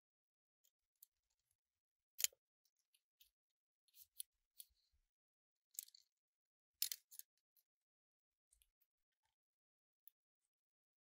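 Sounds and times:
small clicks on metal: 6.8s - 7.4s.

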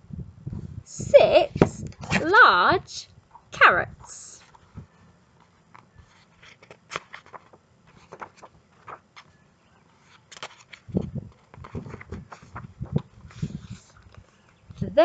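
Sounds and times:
paper crackles and rustles: 4.4s - 14.9s
book page turning: 5.4s - 9.4s, 10.0s - 14.7s
book bumping against microphone: 10.2s - 14.2s.

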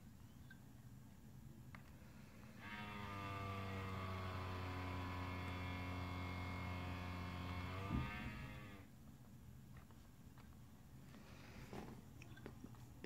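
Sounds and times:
laptop fan droning: 1.6s - 9.0s.

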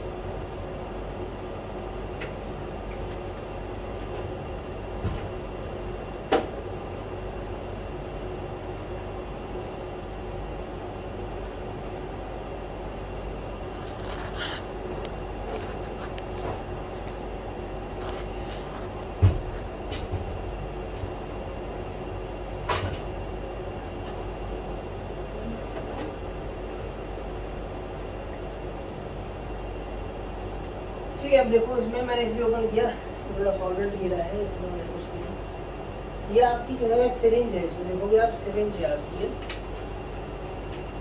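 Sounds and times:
lab instruments humming: 0.0s - 41.0s
heavy thump: 19.1s - 20.3s.

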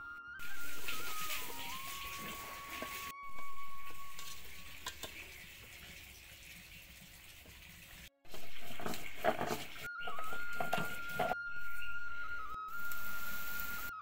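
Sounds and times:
stone roller grinding on stone: 8.3s - 11.4s.

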